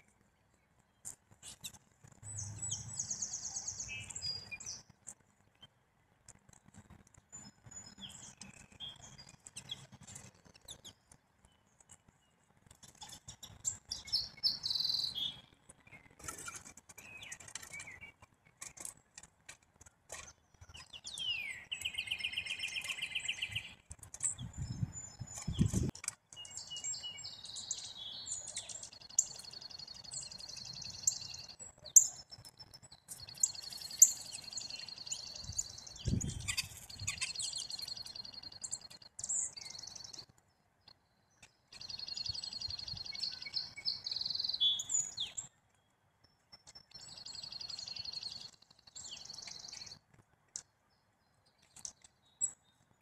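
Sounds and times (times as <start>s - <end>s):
songbirds chirping: 0.0s - 53.0s
buzzy bird trill: 13.0s - 18.2s, 20.1s - 40.2s.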